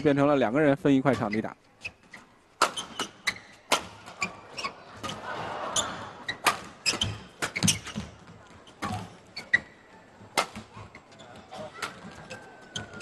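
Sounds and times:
shoes squeaking on court: 1.0 - 13.0
rackets hitting shuttlecock: 2.1 - 8.1, 10.2 - 10.8
crowd murmur: 4.0 - 6.6, 8.2 - 13.0.

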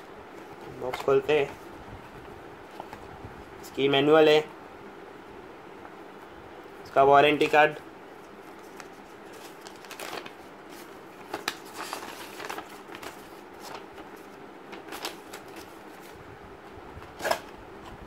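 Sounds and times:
paper rustling and snapping: 8.5 - 16.2.

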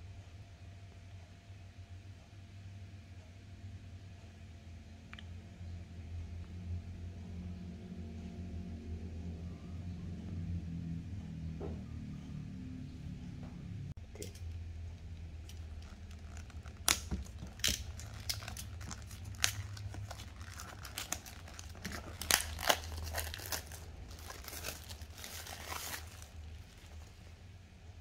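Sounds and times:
low steady hum: 0.0 - 28.0
plastic shrink-wrap crinkling: 15.4 - 27.4.

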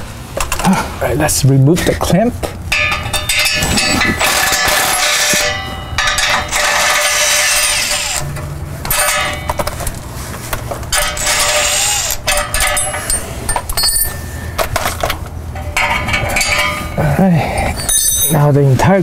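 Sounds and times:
impact wrench running in bursts: 3.8 - 8.3, 10.9 - 13.2.

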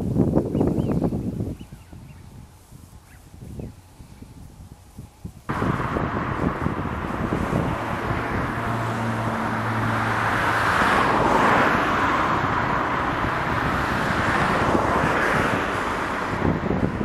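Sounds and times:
low engine hum: 0.0 - 17.0
passing vehicles: 0.0 - 17.0
car going by: 5.5 - 17.0.

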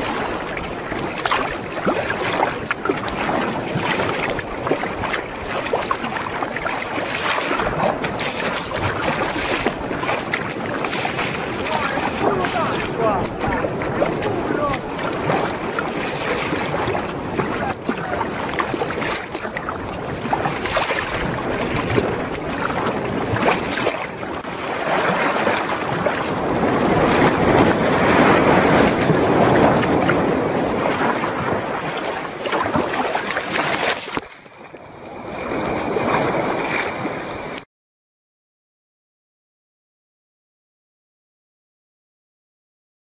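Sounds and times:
wind buffeting microphone: 0.0 - 34.0
breaking surf: 0.0 - 34.2, 35.1 - 37.6
water splashing along kayak hull: 0.0 - 37.6.

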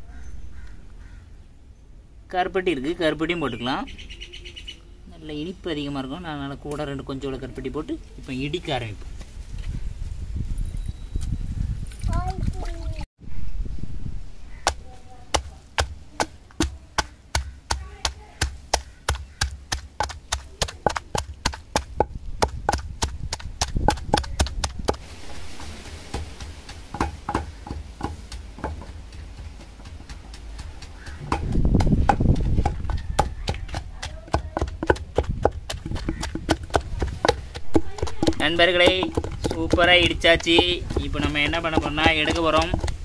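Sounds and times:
pestle pounding in stone mortar: 14.6 - 25.1, 26.0 - 43.0.

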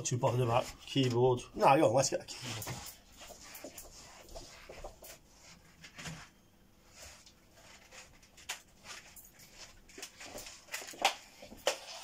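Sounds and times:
objects being handled: 2.3 - 12.0.

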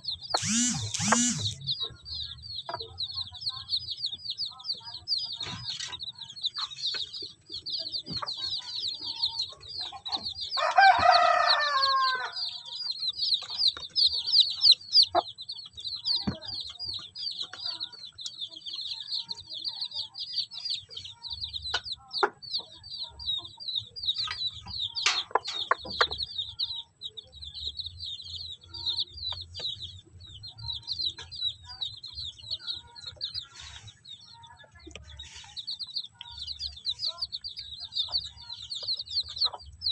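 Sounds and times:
chicks peeping: 0.0 - 39.9
adult chicken call: 10.0 - 12.6.

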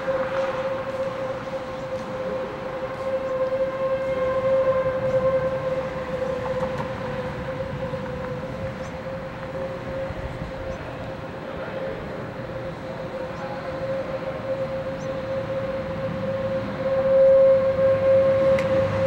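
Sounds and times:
steady rushing noise: 0.0 - 19.0
tornado warning siren steady tone: 0.0 - 19.0.

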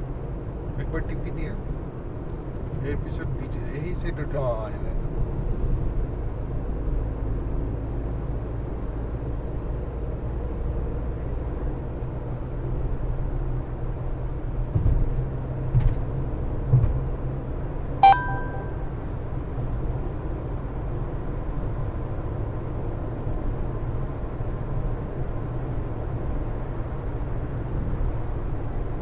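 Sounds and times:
car road and engine rumble: 0.0 - 29.0
sharp ringing clink: 18.0 - 18.9.

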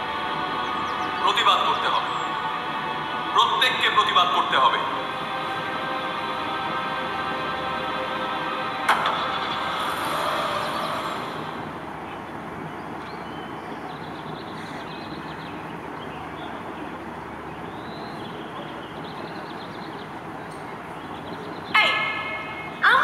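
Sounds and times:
outdoor background hiss: 0.0 - 23.0
car driving off: 8.7 - 12.2.

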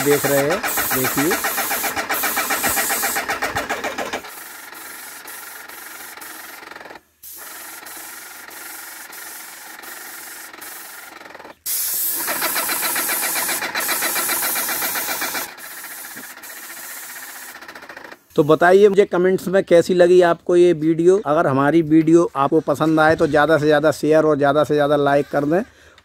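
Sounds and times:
paint spraying hiss: 0.0 - 18.2
paint sprayer pump pulsing: 0.0 - 18.4.

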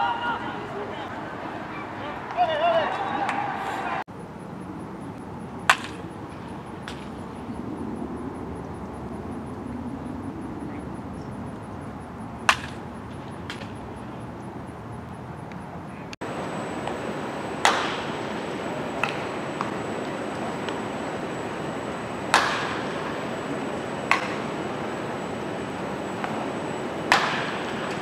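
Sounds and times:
background noise: 0.0 - 9.9
baseball bat hitting ball: 5.7 - 6.0, 12.5 - 12.8, 17.6 - 18.2, 19.0 - 19.3, 22.3 - 23.0, 24.0 - 24.6, 27.0 - 28.0.

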